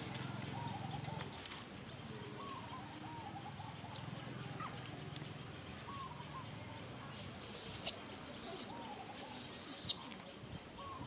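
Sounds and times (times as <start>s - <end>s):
high-pitched animal calls: 7.1s - 10.1s.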